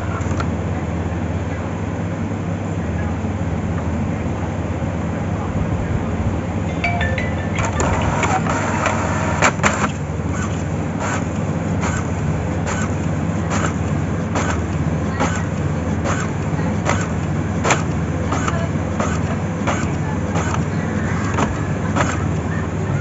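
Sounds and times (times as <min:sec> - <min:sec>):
regular printer clicks: 0:11.8 - 0:22.5.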